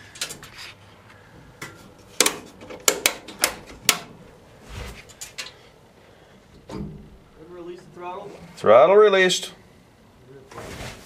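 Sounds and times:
sharp clicks and knocks: 1.6 - 4.2.

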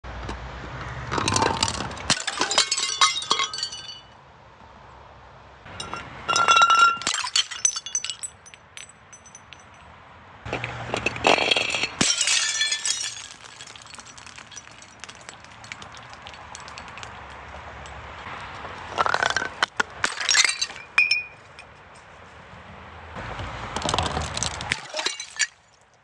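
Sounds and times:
plastic balls bouncing on steps: 1.1 - 3.8, 10.5 - 21.3, 23.8 - 25.2
glass jars clattering down steps: 1.2 - 4.1, 5.7 - 9.8, 11.0 - 18.0, 19.0 - 21.7, 24.3 - 25.6
glass jar shattering: 1.3 - 4.1, 5.8 - 9.8, 11.0 - 17.1, 20.0 - 21.7, 24.1 - 25.8.

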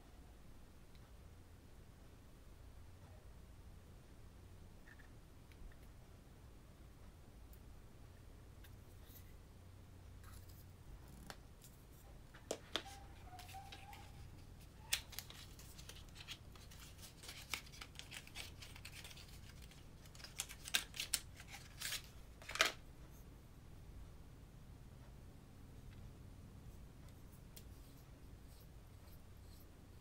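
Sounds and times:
packaging clicks and crinkles: 12.8 - 22.8.

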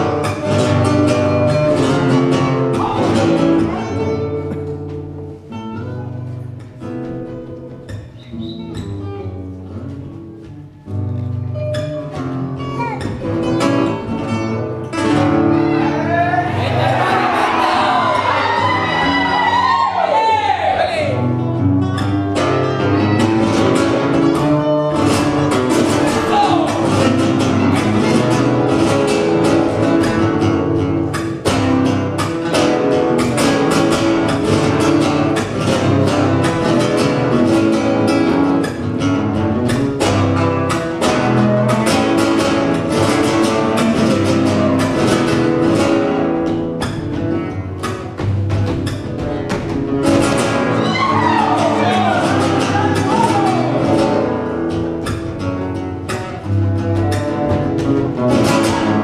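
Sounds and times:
guitar playing: 0.0 - 59.0
stamping footwork on stage floor: 4.3 - 14.6, 42.0 - 53.6, 54.6 - 59.0.

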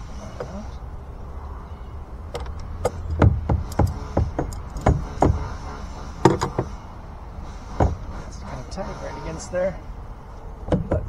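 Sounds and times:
metal knocking against metal: 2.4 - 5.4, 10.7 - 11.0.

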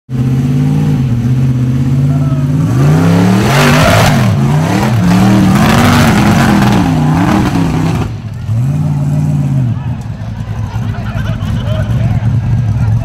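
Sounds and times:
engine revving under load: 0.1 - 10.0.

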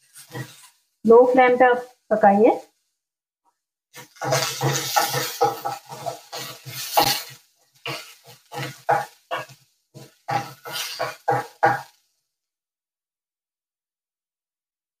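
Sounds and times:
wooden spoon scraping metal pan: 0.0 - 0.8, 3.9 - 12.0.

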